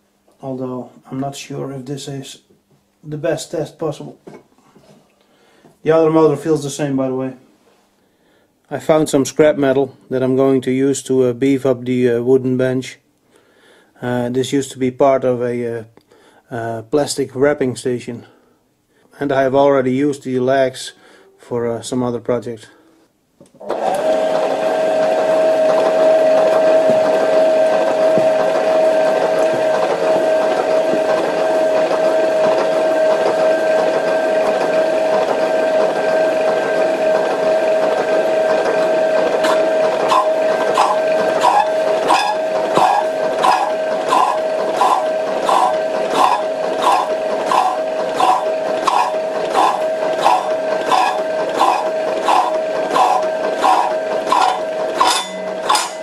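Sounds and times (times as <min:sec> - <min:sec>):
power hacksaw humming: 0:23.6 - 0:56.0
saw blade clacking through steel: 0:50.9 - 0:56.0.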